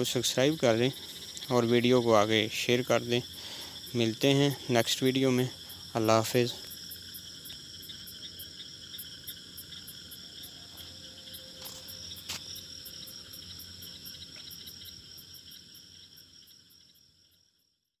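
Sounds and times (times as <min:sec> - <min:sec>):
high-pitched chirping chorus: 0:00.0 - 0:17.0.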